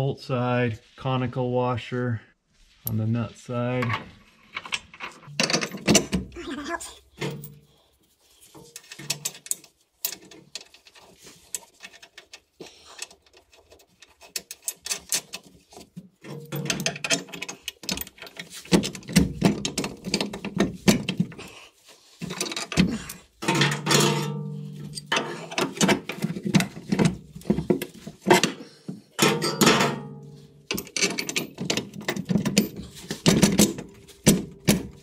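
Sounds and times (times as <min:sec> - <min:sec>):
metal nuts and washers clicking: 0:04.6 - 0:06.2, 0:08.6 - 0:21.3, 0:22.2 - 0:28.6, 0:29.2 - 0:35.0.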